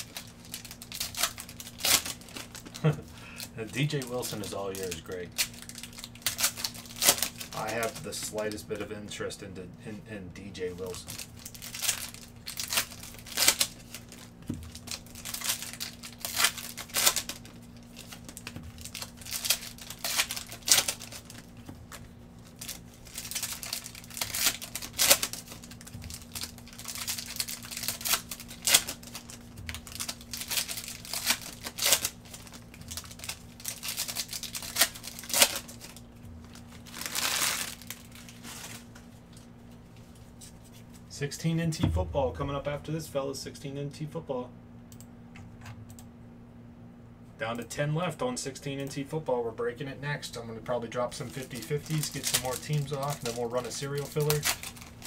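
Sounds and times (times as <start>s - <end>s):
plastic wrappers crinkling and tearing: 0.0s - 8.9s, 10.6s - 41.0s, 51.0s - 55.0s.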